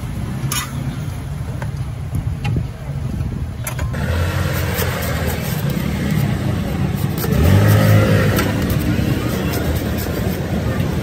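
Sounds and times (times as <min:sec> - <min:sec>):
vehicle engine passing by: 0:04.0 - 0:11.0.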